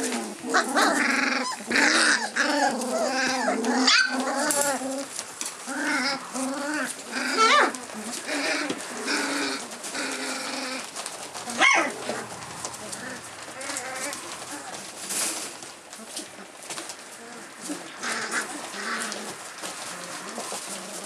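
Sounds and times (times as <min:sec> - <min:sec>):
puppies calling: 0:00.0 - 0:21.0
puppy sharp cries: 0:00.5 - 0:04.7, 0:11.5 - 0:12.3.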